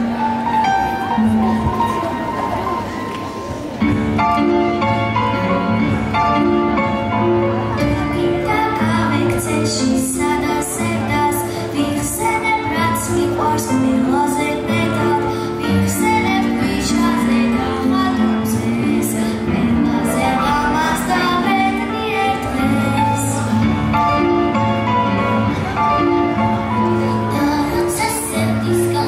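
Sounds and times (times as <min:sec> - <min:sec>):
instrumental accompaniment: 0:00.0 - 0:29.0
girl singing into a microphone: 0:08.0 - 0:23.7, 0:27.0 - 0:29.0.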